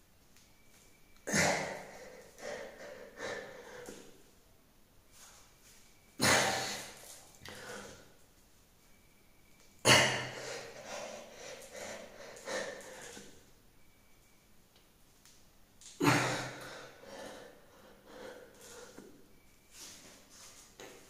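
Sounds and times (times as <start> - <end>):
man panting: 1.3 - 4.2, 6.3 - 8.0, 10.0 - 13.3, 16.0 - 19.1.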